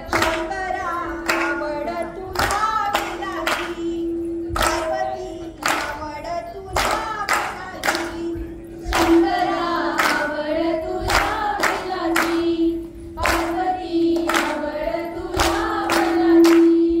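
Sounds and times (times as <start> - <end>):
women singing folk song: 0.0 - 17.0
sharp hand claps: 0.1 - 0.6, 1.2 - 1.7, 2.3 - 3.9, 4.5 - 10.4, 11.0 - 12.5, 13.2 - 16.9.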